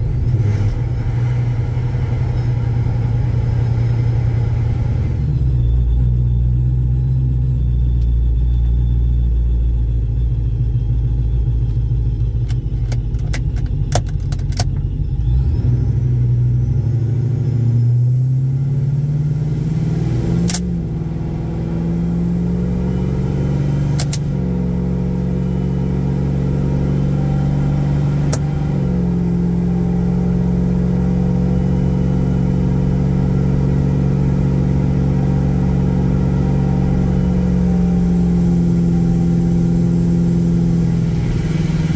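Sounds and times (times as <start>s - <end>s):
pickup truck engine: 0.0s - 41.9s
sharp clicks: 24.0s - 24.3s.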